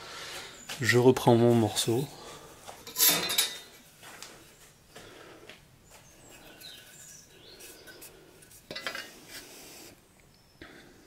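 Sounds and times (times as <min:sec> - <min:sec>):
faint handling noises: 0:00.3 - 0:10.3.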